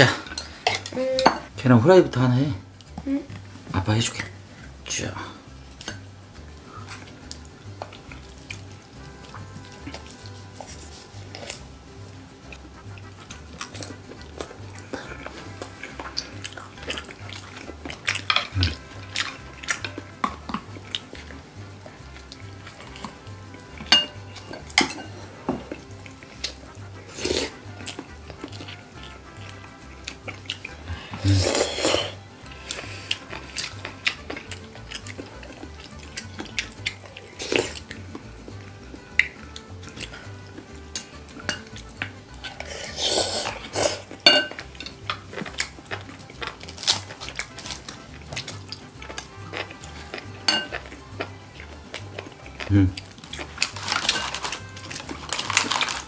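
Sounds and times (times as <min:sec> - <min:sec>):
utensils clinking against bowls: 0:00.0 - 0:01.5, 0:13.3 - 0:21.3, 0:22.1 - 0:29.5, 0:39.2 - 0:56.0
soft background music: 0:00.0 - 0:56.0.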